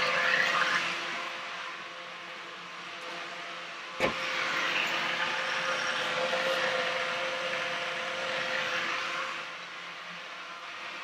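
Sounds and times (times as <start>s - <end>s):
blender motor running: 0.0s - 1.4s, 4.0s - 11.0s.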